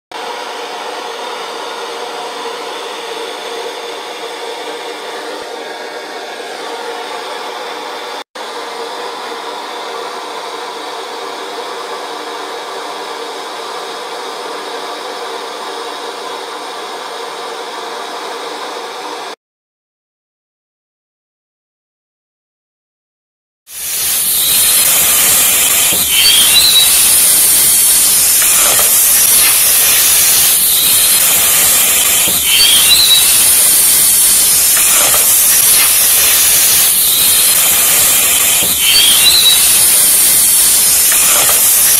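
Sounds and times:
torch flame hissing: 23.7s - 41.9s.

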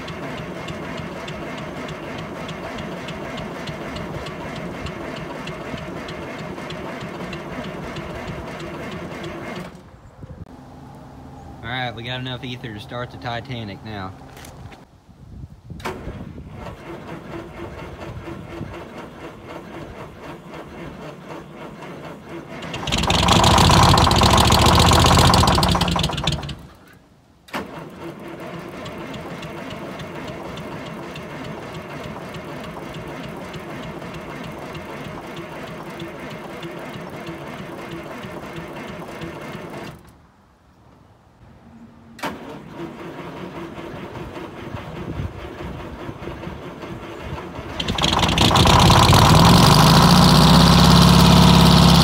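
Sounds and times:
diesel engine running loudly: 0.0s - 9.7s, 16.6s - 26.7s, 42.8s - 52.0s
starter cranking engine: 0.0s - 9.8s, 15.8s - 40.2s, 42.2s - 52.0s.

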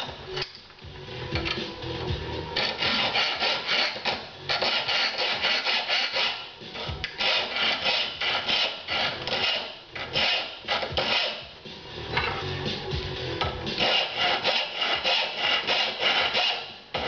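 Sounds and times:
hand file rasping on metal: 2.6s - 11.5s, 13.7s - 17.0s.

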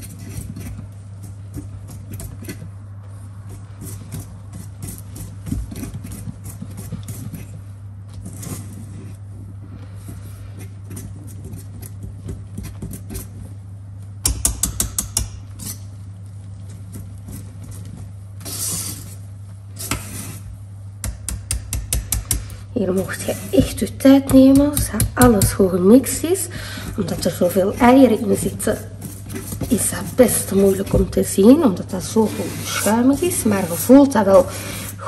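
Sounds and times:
steady low hum: 0.0s - 35.0s
whisk beating batter in bowl: 16.6s - 35.0s.

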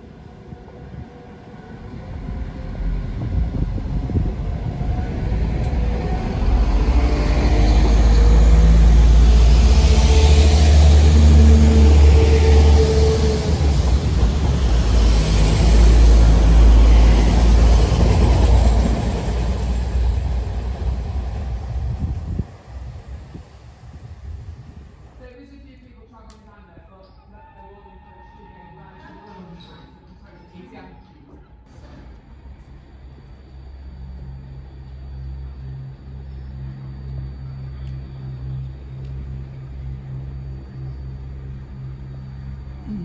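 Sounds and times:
diesel train engines running: 0.0s - 25.2s, 31.7s - 43.0s
wheel on rail noise: 0.9s - 25.2s.

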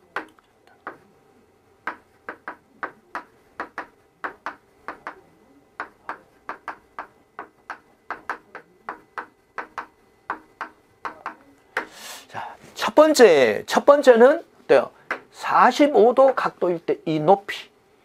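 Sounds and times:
chalk tapping on chalkboard: 0.0s - 1.0s, 1.8s - 5.2s, 5.8s - 12.0s.

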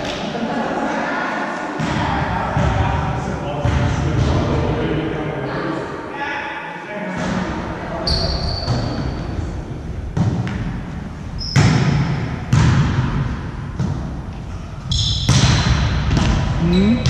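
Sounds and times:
sneakers squeaking on floor: 8.0s - 9.4s, 10.2s - 12.8s, 14.8s - 15.5s, 16.2s - 17.0s
volleyball slaps echoing: 10.0s - 17.0s.

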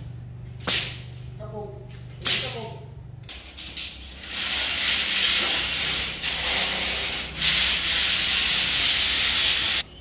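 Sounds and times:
steel rods scraping on concrete: 3.3s - 9.8s.

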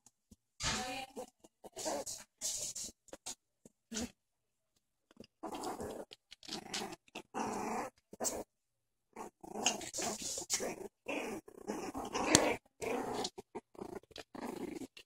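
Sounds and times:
puppies growling: 1.1s - 2.3s, 5.2s - 15.0s.

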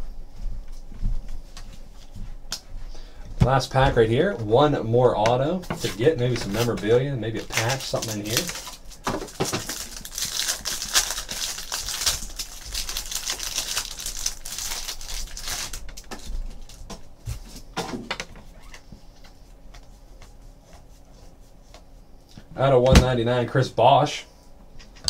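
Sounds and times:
plastic wrapper crinkling and tearing: 6.4s - 16.8s.

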